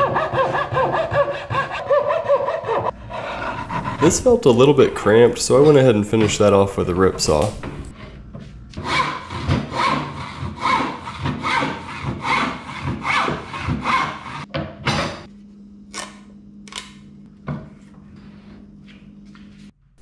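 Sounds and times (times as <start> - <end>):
hand saw cutting wood: 0.0 - 5.7, 8.8 - 14.5.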